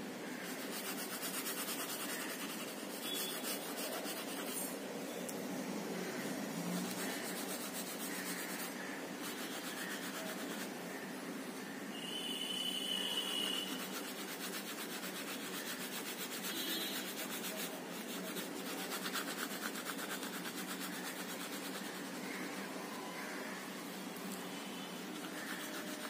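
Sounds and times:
pastel rubbing on paper: 0.3 - 4.7, 6.7 - 10.8, 13.1 - 22.3, 25.0 - 26.0.

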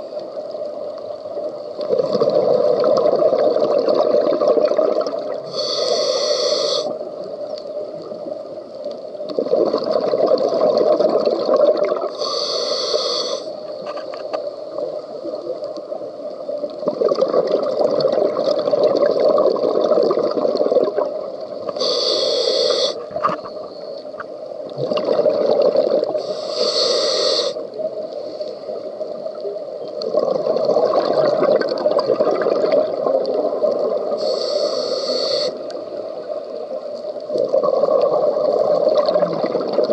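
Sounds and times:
gurgling exhaled bubbles: 1.8 - 5.6, 9.2 - 12.2, 16.7 - 21.4, 24.7 - 26.3, 30.0 - 34.8, 37.3 - 39.9
hissing regulator inhales: 5.4 - 7.0, 12.1 - 13.6, 21.8 - 23.1, 26.2 - 27.6, 34.2 - 35.7.

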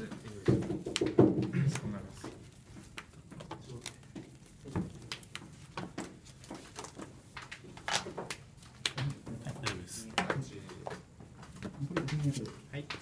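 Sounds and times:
trading cards tapping on playmat: 0.1 - 11.0.

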